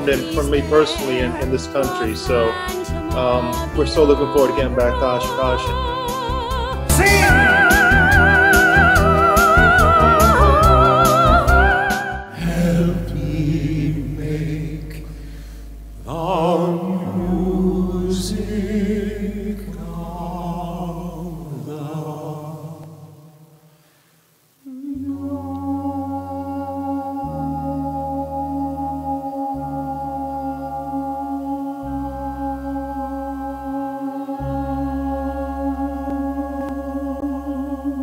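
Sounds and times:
low sustained accompaniment: 0:00.0 - 0:05.6
male voices singing: 0:00.0 - 0:06.0, 0:06.9 - 0:15.1, 0:16.1 - 0:23.0, 0:24.6 - 0:30.0
steady held chord: 0:00.0 - 0:11.0
soprano singing high note: 0:00.0 - 0:14.6.

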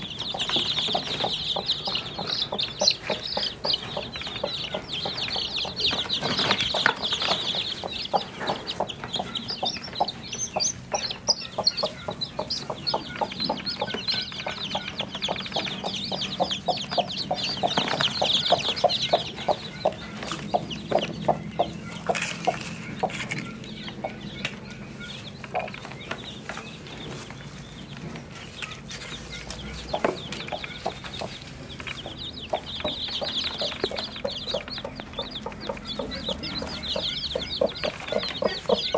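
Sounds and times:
chicks peeping: 0:00.0 - 0:38.9
hen clucking: 0:00.0 - 0:38.9.

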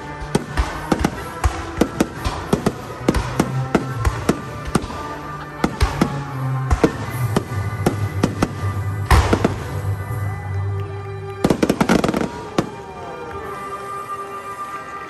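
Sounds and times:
crackling firework reports: 0:00.0 - 0:15.0
music: 0:00.0 - 0:15.0.

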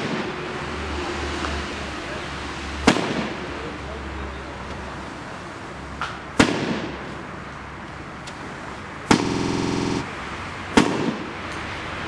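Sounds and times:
firework buzz: 0:09.1 - 0:10.0.

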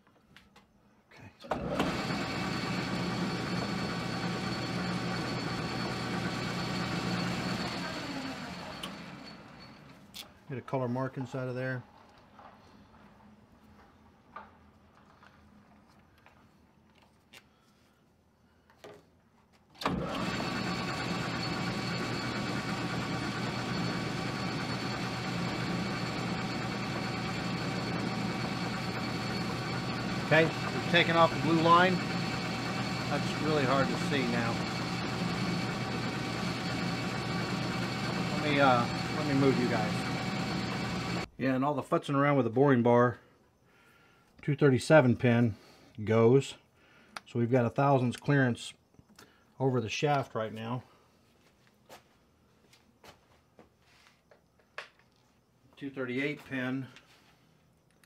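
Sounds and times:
metal lathe motor running: 0:01.6 - 0:10.0, 0:19.9 - 0:41.3.

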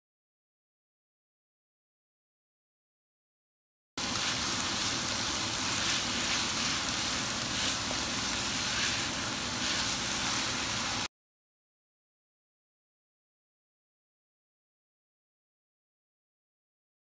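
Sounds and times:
food sizzling in hot oil: 0:04.0 - 0:11.1.

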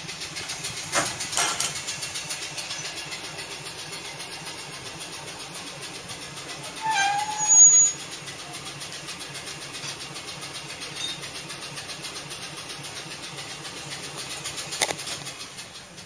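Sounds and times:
engine idling: 0:00.0 - 0:16.0
short loud squeal: 0:06.8 - 0:08.0.

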